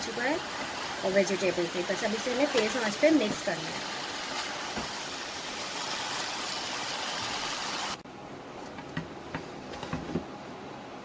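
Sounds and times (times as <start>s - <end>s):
noodles sizzling in a wok: 0.0s - 8.0s.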